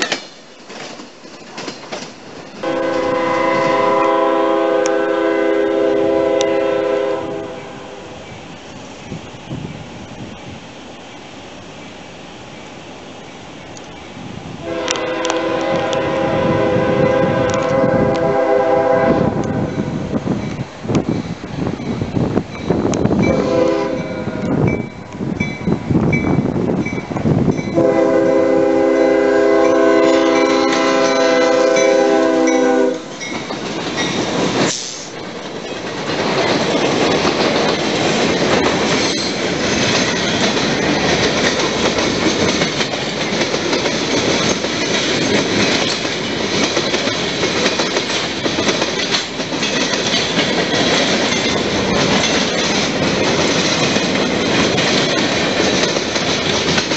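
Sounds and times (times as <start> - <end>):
train wheels rumbling on rail: 0.0 - 56.9
locomotive horn blasts: 2.6 - 8.0, 14.6 - 19.9, 23.2 - 24.6, 27.7 - 33.2
crossing bell ringing: 19.7 - 28.1, 29.0 - 34.3.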